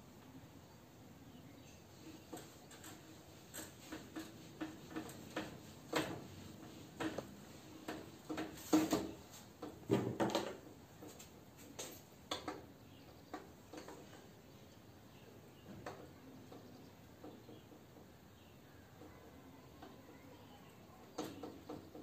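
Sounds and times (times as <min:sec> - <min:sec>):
marker tapping and squeaking on whiteboard: 0:02.0 - 0:14.3, 0:21.1 - 0:22.0.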